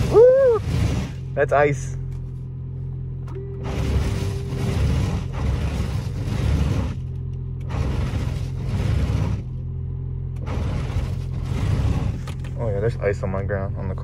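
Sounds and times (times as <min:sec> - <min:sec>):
wiper blades scraping icy windshield: 0:00.0 - 0:01.9, 0:03.6 - 0:09.6, 0:10.4 - 0:14.0
steady low hum: 0:00.0 - 0:14.0.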